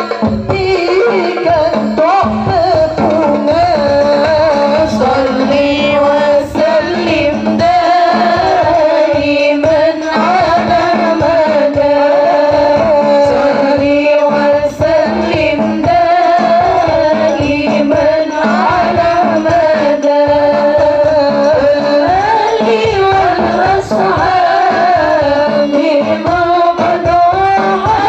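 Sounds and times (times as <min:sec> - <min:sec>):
hand drums beating: 0:00.0 - 0:28.0
person singing devotional song: 0:00.0 - 0:28.0.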